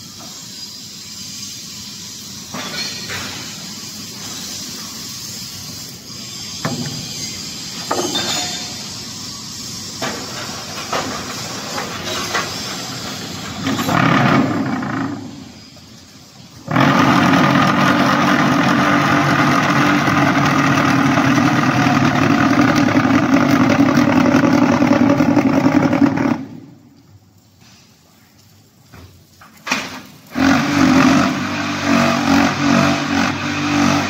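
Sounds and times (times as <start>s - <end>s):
block making machine running: 9.9s - 27.0s, 29.7s - 34.0s
loud vibrating drone: 16.6s - 26.8s.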